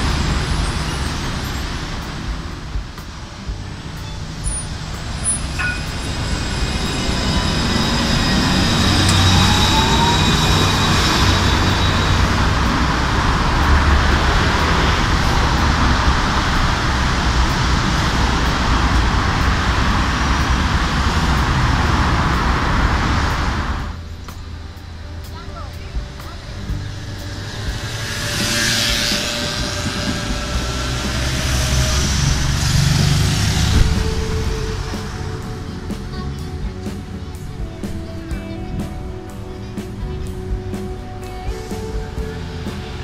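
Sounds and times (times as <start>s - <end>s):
electric tram running on track: 0.0s - 43.0s
road traffic: 0.0s - 43.0s
tram motor whine: 0.0s - 43.0s
faint high tones: 3.3s - 21.9s.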